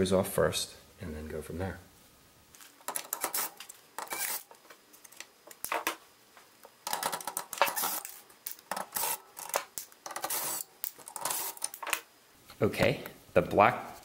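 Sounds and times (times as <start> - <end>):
cordless drill removing screws: 2.9 - 4.5, 6.9 - 11.9.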